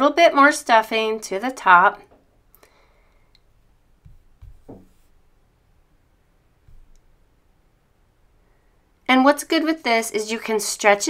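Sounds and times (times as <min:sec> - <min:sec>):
soft low bumps: 0:03.5 - 0:05.4, 0:06.5 - 0:07.5
stuffing pushed into knitted piece: 0:04.0 - 0:05.2, 0:06.7 - 0:07.1.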